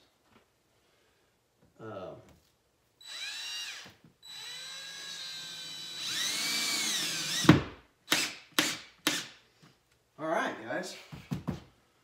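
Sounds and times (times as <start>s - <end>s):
cordless drill driving screws: 3.0s - 9.4s.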